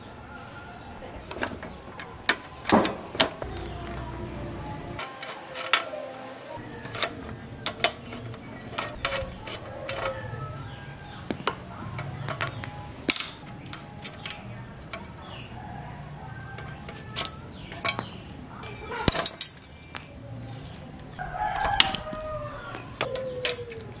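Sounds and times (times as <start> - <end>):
steel bicycle parts clinking: 5.0 - 6.1, 6.7 - 24.0.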